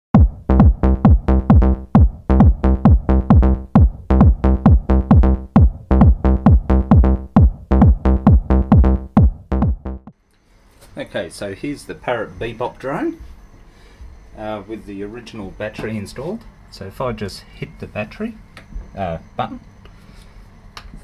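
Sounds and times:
drum machine beat: 0:00.1 - 0:10.1
electronic music: 0:00.1 - 0:10.1.

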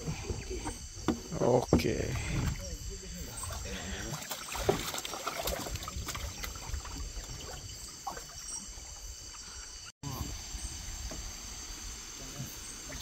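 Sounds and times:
paddle swishing through water: 0:00.0 - 0:09.9
paddle knocks against hull: 0:00.2 - 0:02.6.

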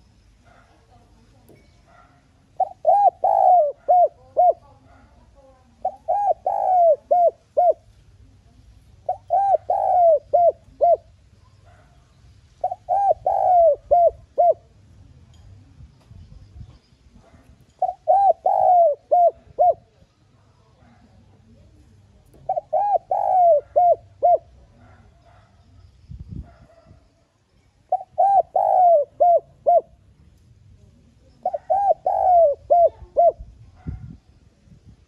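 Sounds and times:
dove cooing: 0:01.9 - 0:08.3, 0:08.9 - 0:12.0, 0:12.6 - 0:14.9, 0:17.2 - 0:21.3, 0:22.3 - 0:25.6, 0:27.8 - 0:30.1, 0:31.0 - 0:34.2.

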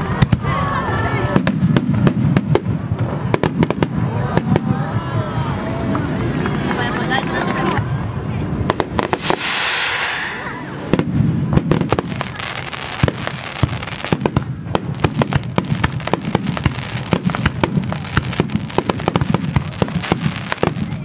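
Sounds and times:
fireworks bangs: 0:00.0 - 0:05.1, 0:08.5 - 0:21.0
crackling firework bursts: 0:00.0 - 0:07.8, 0:08.4 - 0:21.0.

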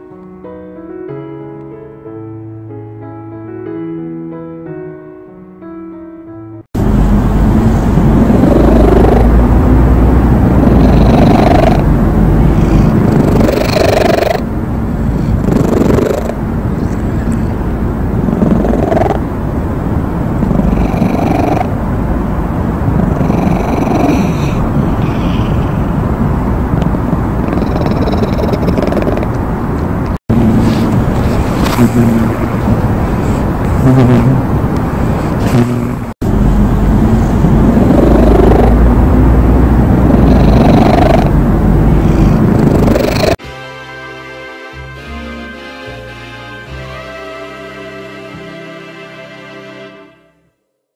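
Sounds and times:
cat purring: 0:07.5 - 0:09.5, 0:10.6 - 0:11.9, 0:12.8 - 0:14.4, 0:15.4 - 0:17.1, 0:18.2 - 0:19.2, 0:20.4 - 0:21.7, 0:23.0 - 0:25.4, 0:26.8 - 0:29.4, 0:37.0 - 0:38.9, 0:40.0 - 0:41.4, 0:42.1 - 0:43.4.

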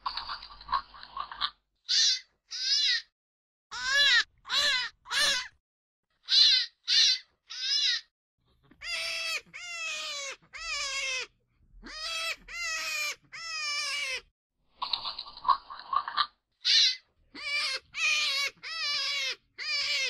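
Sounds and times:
high piercing animal cries: 0:01.9 - 0:03.1, 0:03.7 - 0:05.6, 0:06.2 - 0:08.1, 0:08.8 - 0:14.3, 0:16.6 - 0:20.0.

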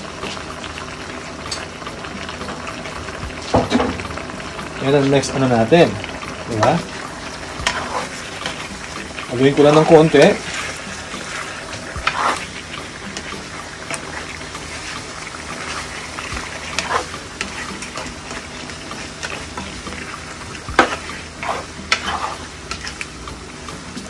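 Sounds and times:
food sizzling in a pan: 0:00.0 - 0:24.0
plastic spatula scraping pan: 0:12.0 - 0:12.5, 0:16.6 - 0:17.6, 0:20.8 - 0:22.5.

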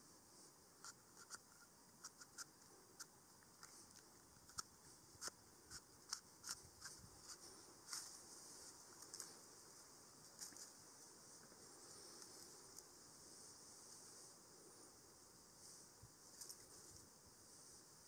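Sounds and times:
faint steady hiss: 0:00.0 - 0:18.0
small sharp clicks: 0:00.8 - 0:08.0.

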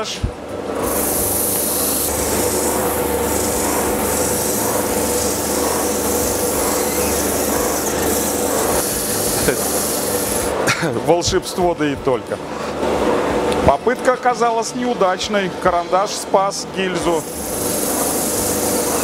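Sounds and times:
sander motor hum: 0:00.5 - 0:10.6, 0:16.8 - 0:19.0
stick rubbing sanding sleeve: 0:00.8 - 0:10.5, 0:17.0 - 0:19.0.

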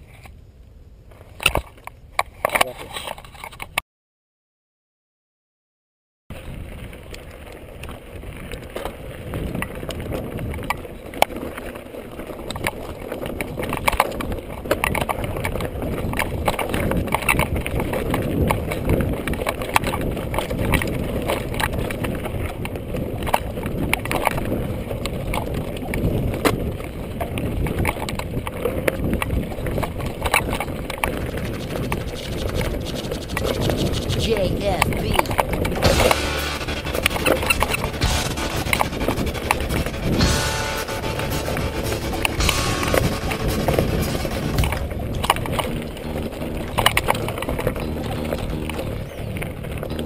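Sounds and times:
bike rattling and knocking: 0:08.8 - 0:34.3.

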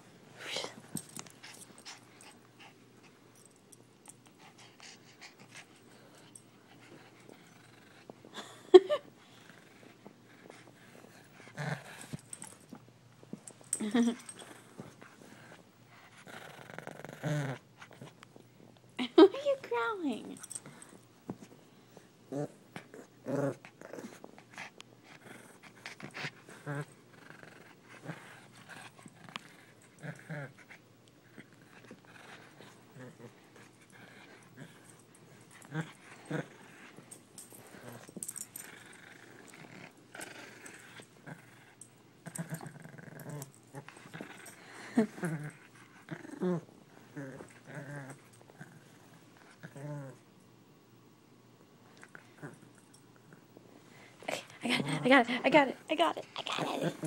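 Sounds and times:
toy and fur rustling: 0:00.3 - 0:08.4, 0:09.1 - 0:16.3, 0:23.5 - 0:49.8
dog panting: 0:00.6 - 0:08.2
dog growling: 0:16.2 - 0:18.1, 0:22.3 - 0:50.2, 0:56.2 - 0:57.0.

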